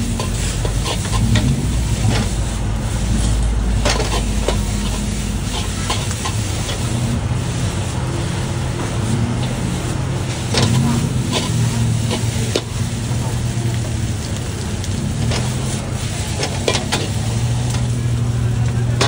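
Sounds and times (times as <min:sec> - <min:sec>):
metal spatula scraping a wok: 0:00.0 - 0:07.9, 0:08.9 - 0:12.8
low rumble: 0:00.0 - 0:16.4
oily sizzling: 0:00.0 - 0:19.0.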